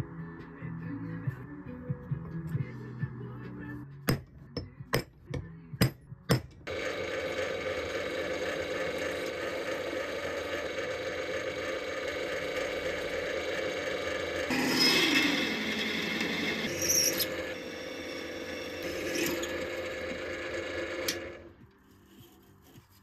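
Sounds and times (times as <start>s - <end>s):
hammer striking punch on steel: 4.1s - 6.6s
drill press motor running: 6.7s - 21.7s.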